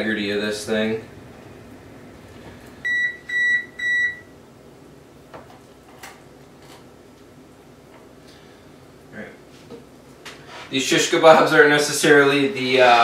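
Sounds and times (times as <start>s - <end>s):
appliance electronic beeps: 2.8s - 4.4s.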